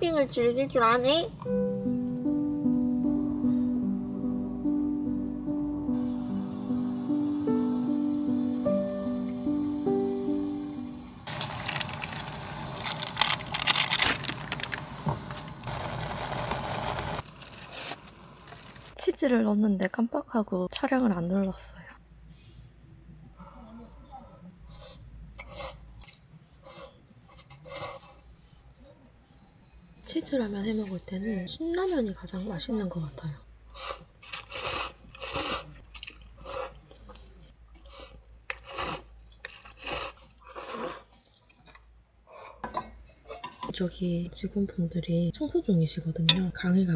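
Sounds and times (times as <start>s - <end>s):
person slurping noodles: 33.8s - 35.8s, 38.0s - 41.2s.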